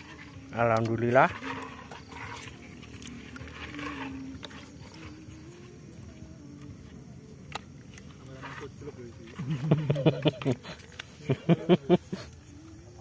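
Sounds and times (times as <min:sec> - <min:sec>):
wet handling of eels in water: 0:00.0 - 0:08.2
faint wavering hum: 0:00.0 - 0:11.2.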